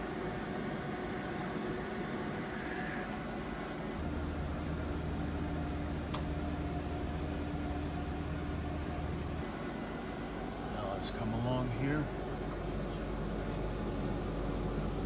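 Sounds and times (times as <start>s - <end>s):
machinery droning: 1.5s - 15.0s
deep hum: 4.0s - 9.4s
sharp click: 6.1s - 6.3s.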